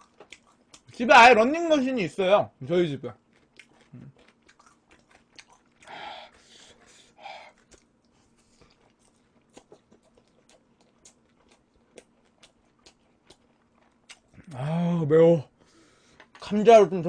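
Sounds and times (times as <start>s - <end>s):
close-up chewing mouth clicks: 0.0s - 1.0s, 3.2s - 14.6s.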